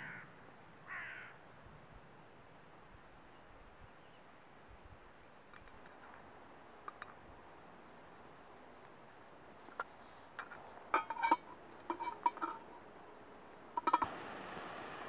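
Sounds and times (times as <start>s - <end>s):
metal mug clinking on stove stand: 10.4s - 12.8s, 13.8s - 14.1s
steady gas hiss: 13.9s - 15.0s.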